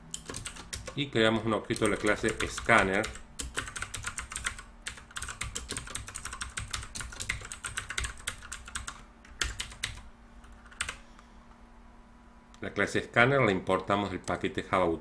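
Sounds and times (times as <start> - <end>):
typing on computer keyboard: 0.1 - 1.0, 1.7 - 11.0.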